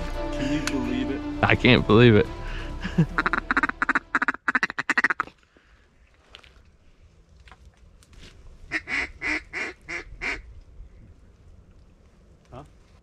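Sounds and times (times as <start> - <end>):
duck quacking: 3.1 - 5.3, 8.7 - 10.4.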